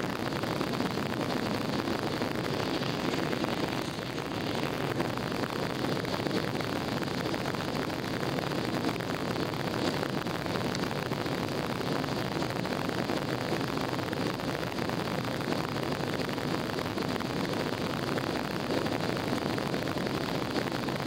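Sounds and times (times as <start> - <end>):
jet engine and airflow noise: 0.0 - 21.0.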